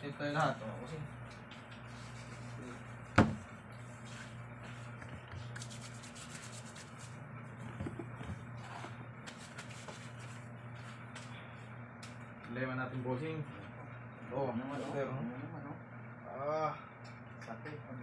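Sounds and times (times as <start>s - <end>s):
steady low hum: 0.0s - 18.0s
hands rubbing: 4.0s - 7.2s.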